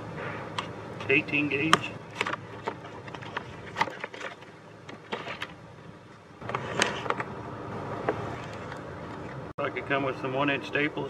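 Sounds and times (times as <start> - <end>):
cardboard box rustling: 2.1 - 5.6.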